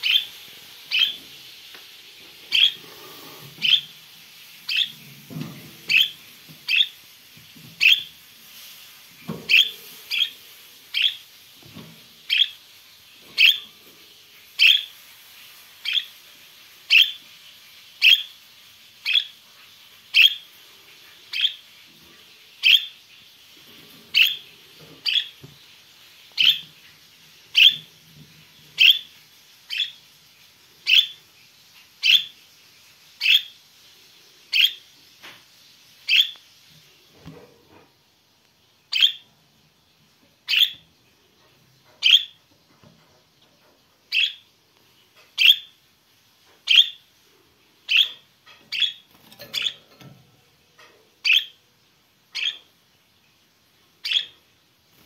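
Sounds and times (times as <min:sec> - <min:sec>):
budgerigar chirping: 0:00.9 - 0:01.1, 0:02.5 - 0:02.8, 0:03.6 - 0:03.8, 0:11.0 - 0:11.2, 0:12.3 - 0:12.6, 0:13.4 - 0:13.6, 0:14.6 - 0:14.9, 0:22.6 - 0:22.9, 0:26.4 - 0:26.6, 0:27.6 - 0:27.8, 0:28.8 - 0:29.0, 0:30.9 - 0:31.2, 0:34.6 - 0:34.8, 0:36.1 - 0:36.4, 0:38.9 - 0:39.2, 0:40.5 - 0:40.8, 0:42.0 - 0:42.4, 0:44.1 - 0:44.4, 0:45.4 - 0:45.7, 0:46.7 - 0:47.0, 0:47.9 - 0:49.8, 0:51.2 - 0:51.6, 0:52.4 - 0:52.7, 0:54.0 - 0:54.4.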